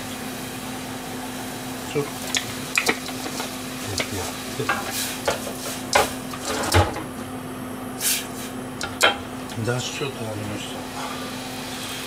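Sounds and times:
liquid bubbling and sizzling: 0.0s - 7.2s, 10.6s - 12.0s
pan clanking on burner grate: 2.4s - 7.0s.

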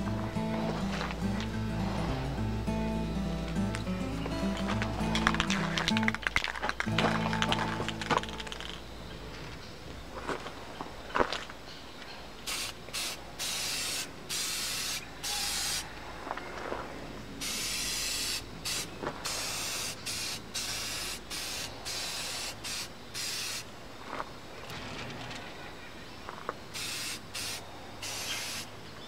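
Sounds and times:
spray paint can hissing: 4.6s - 6.4s, 12.5s - 15.8s, 17.4s - 23.7s, 26.7s - 28.7s.

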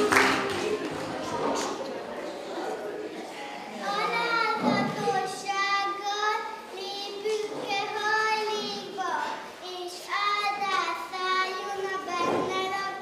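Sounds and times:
child singing: 4.0s - 13.0s.

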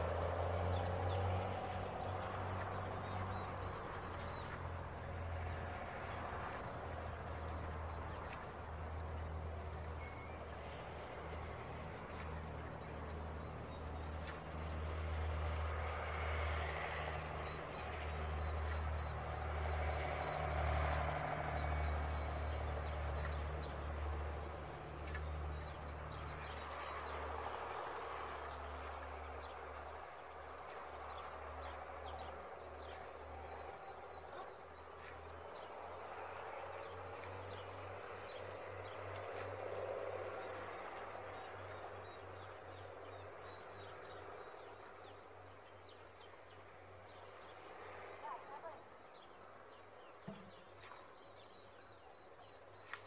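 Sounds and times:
faint bird chirps: 10.0s - 10.5s.

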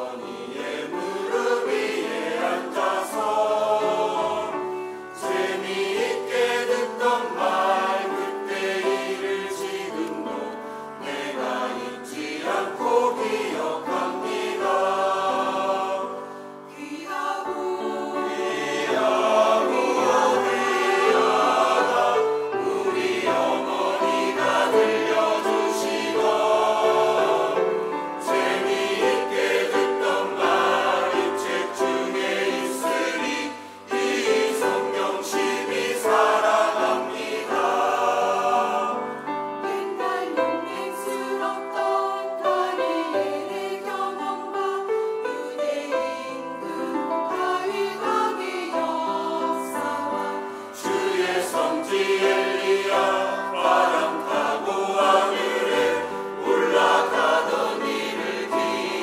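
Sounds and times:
choir singing a hymn in harmony: 0.0s - 59.0s.

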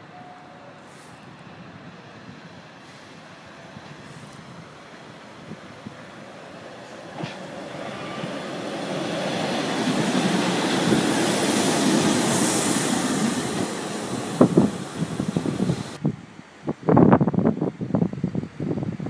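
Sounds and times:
train engine and wheels passing: 0.0s - 16.0s.

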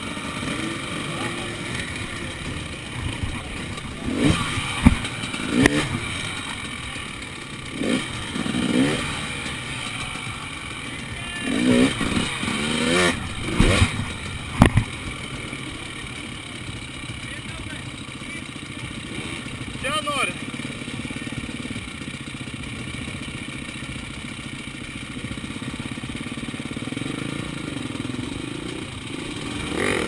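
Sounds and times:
motorcycle striking logs: 0.0s - 17.2s
motorcycle engine revving: 0.0s - 30.0s.

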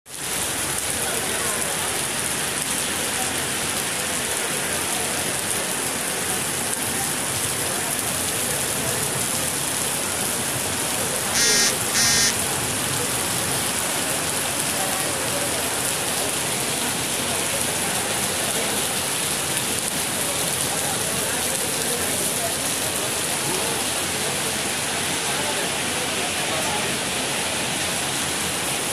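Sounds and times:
heavy rain on paving: 0.1s - 28.9s
short high beeps: 11.4s - 12.4s.

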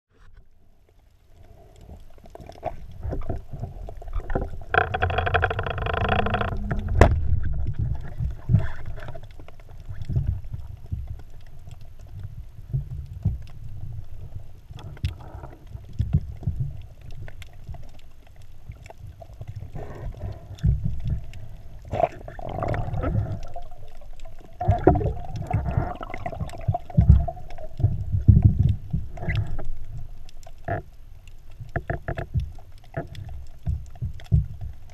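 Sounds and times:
underwater rumble of moving water: 0.1s - 34.9s
faint steady hum: 5.8s - 34.9s.

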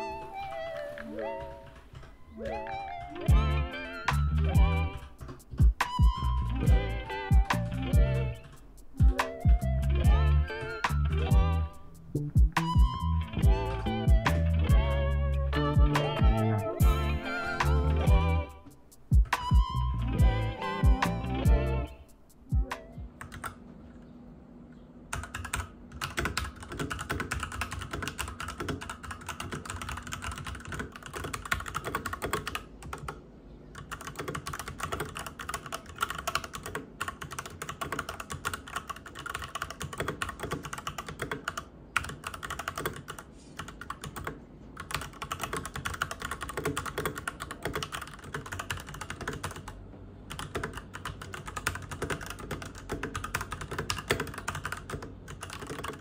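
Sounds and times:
mechanical keyboard typing: 4.1s - 9.7s, 22.6s - 23.6s, 25.1s - 56.0s.

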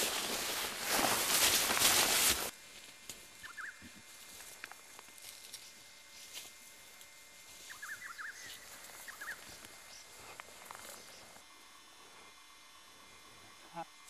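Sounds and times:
footsteps through dry grass: 0.0s - 11.4s
bird chirping: 3.4s - 3.9s, 7.7s - 11.4s.

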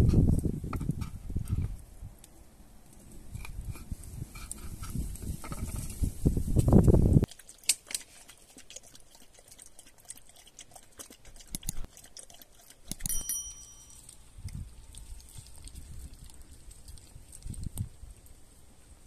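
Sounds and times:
dog chewing and licking meat: 7.3s - 18.2s.

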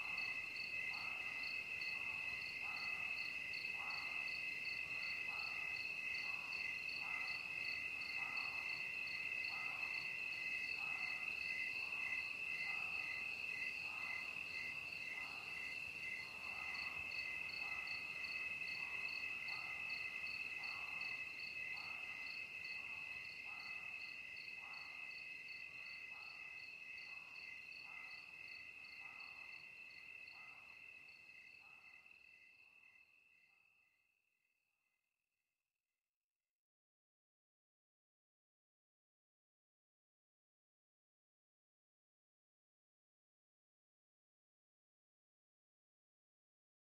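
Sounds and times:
slow low pulsing insect call: 0.0s - 34.6s.

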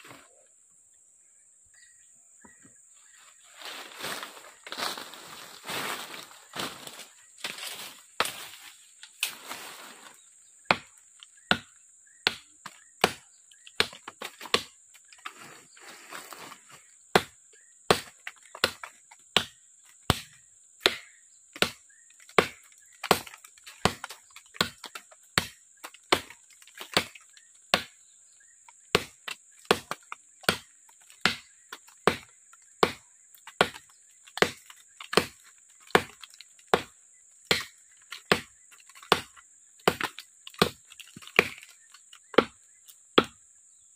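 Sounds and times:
machete chopping wood: 10.6s - 15.2s, 17.1s - 28.2s, 28.8s - 43.4s.

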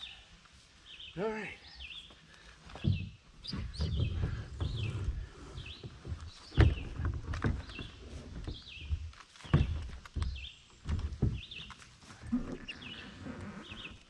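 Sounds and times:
bird chirping: 0.8s - 14.0s
plastic kayak knocking and rubbing: 2.7s - 14.0s.

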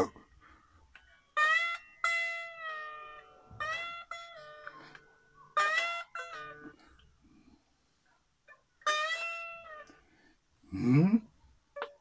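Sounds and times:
soft guitar plucks: 0.9s - 7.1s
unplugged electric guitar chords: 0.9s - 7.1s.

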